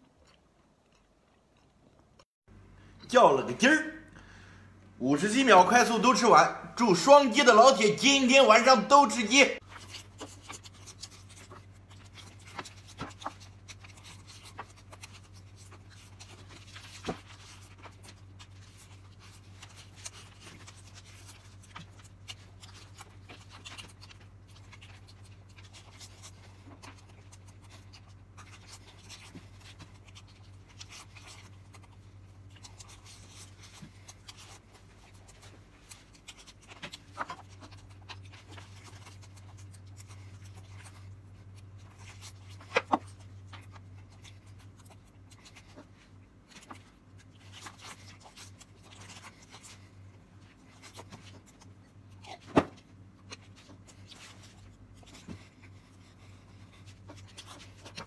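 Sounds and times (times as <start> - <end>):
chewing: 0.0 - 2.3, 9.6 - 58.0
tearing crispy fried chicken: 9.6 - 50.0.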